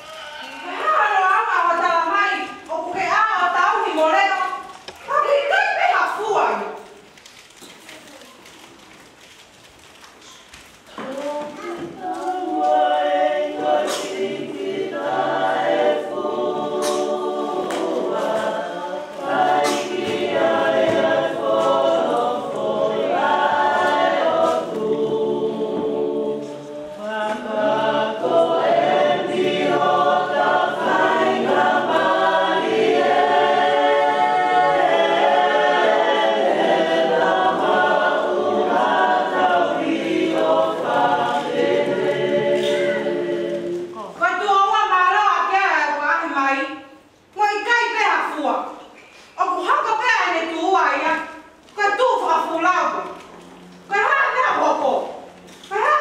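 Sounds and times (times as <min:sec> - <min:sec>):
choir singing: 0:11.9 - 0:44.2.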